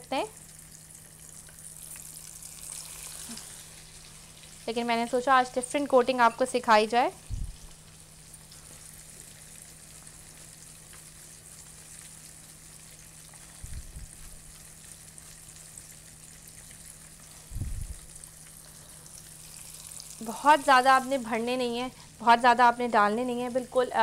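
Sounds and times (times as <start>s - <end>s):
fish frying in hot oil: 0.0s - 24.0s
dull low thumps: 7.2s - 7.7s, 13.6s - 14.2s, 17.5s - 18.1s.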